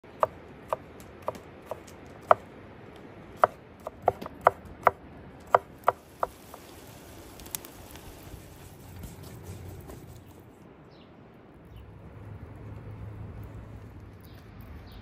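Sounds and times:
knife chopping on wooden board: 3.4s - 6.4s.

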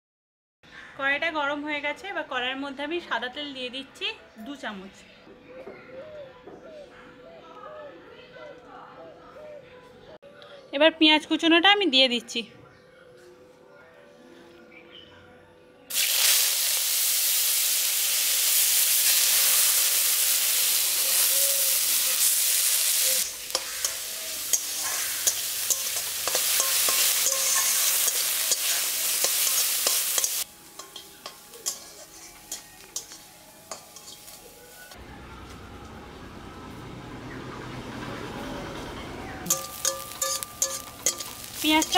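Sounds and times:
onion sizzling in hot oil: 15.9s - 35.0s, 39.5s - 41.9s
metal spatula scraping pan: 23.2s - 34.4s, 39.5s - 41.9s.

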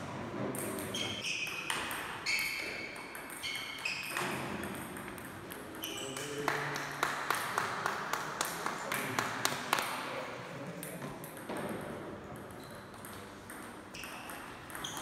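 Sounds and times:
shoes squeaking on floor: 0.9s - 4.7s, 5.8s - 6.2s, 13.9s - 15.0s.

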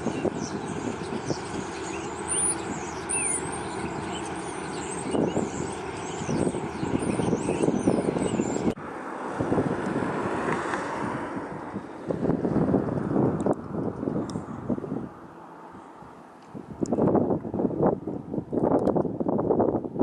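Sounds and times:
small birds chirping: 0.0s - 8.8s
rushing background noise: 0.0s - 19.2s.

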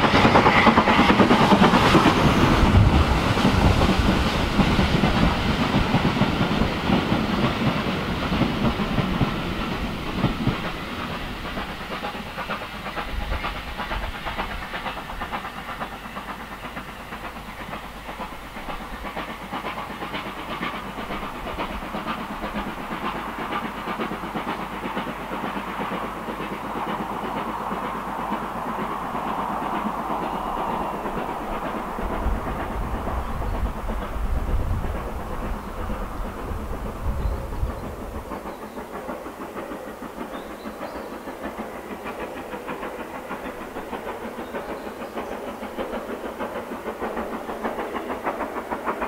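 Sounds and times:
steam locomotive: 0.0s - 49.0s.

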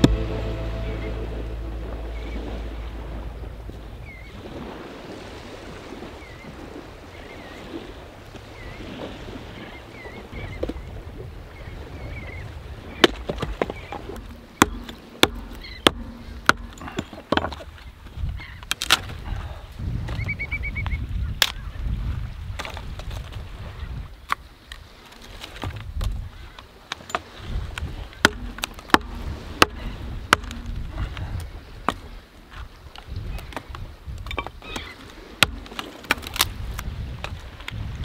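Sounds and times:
low rumble: 0.0s - 4.6s
sharp knocks: 13.3s - 17.6s, 28.2s - 30.9s, 35.4s - 36.3s.

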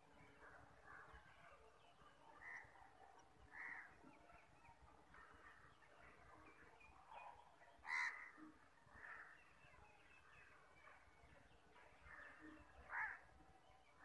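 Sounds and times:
crow cawing: 7.8s - 8.3s, 12.9s - 13.2s.

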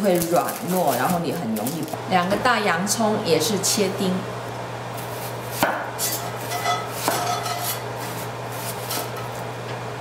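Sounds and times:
knife slicing onion: 5.0s - 9.5s.

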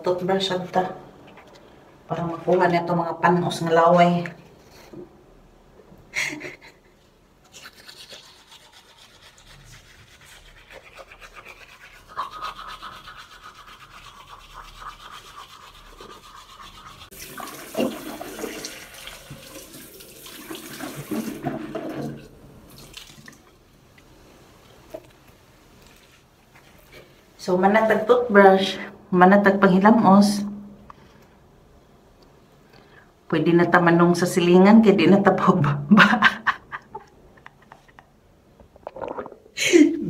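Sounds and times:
toothbrush scrubbing teeth: 7.4s - 19.6s
tap water running and splashing: 17.0s - 23.6s.

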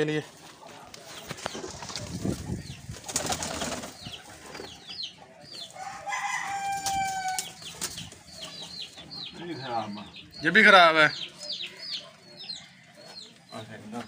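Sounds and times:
pigeons flapping wings: 1.3s - 4.1s.

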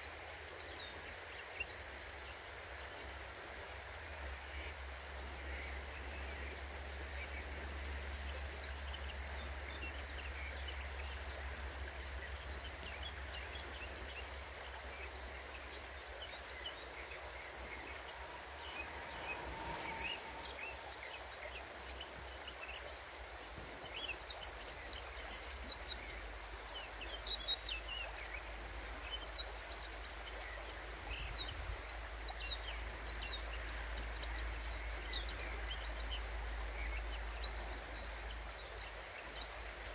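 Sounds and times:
river flowing: 0.0s - 39.9s
low steady rumble: 6.9s - 21.9s.

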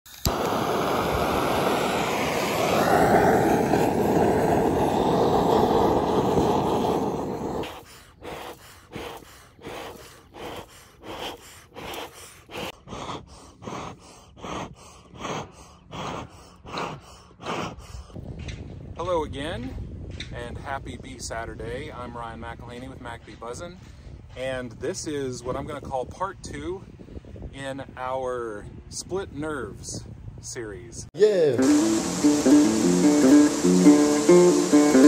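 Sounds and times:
bellows puffing air: 0.1s - 18.2s, 31.6s - 35.0s
loud steady rushing noise: 0.3s - 7.8s, 31.6s - 35.0s.

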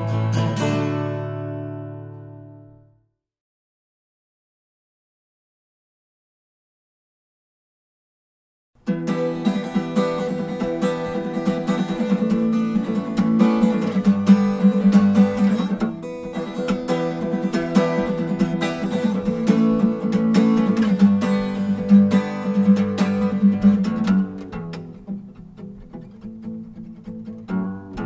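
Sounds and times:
acoustic guitar picking and strumming: 0.0s - 2.8s, 8.8s - 28.0s.

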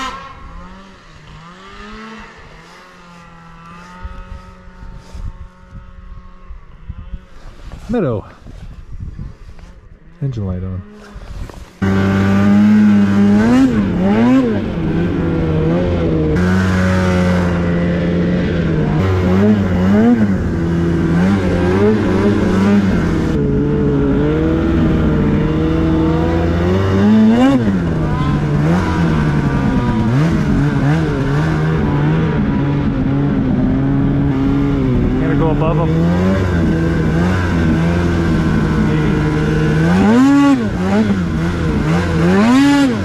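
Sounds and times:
snowmobile engine running: 0.0s - 43.0s
engine throttle blips: 10.8s - 43.0s.

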